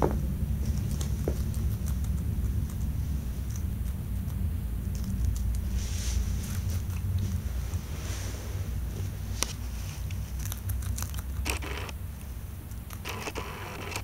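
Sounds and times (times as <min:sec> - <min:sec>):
hamster crunching: 0:00.0 - 0:14.0
steady low hum: 0:00.0 - 0:14.0
hamster chewing crisp clicks: 0:00.6 - 0:05.6, 0:10.3 - 0:11.6.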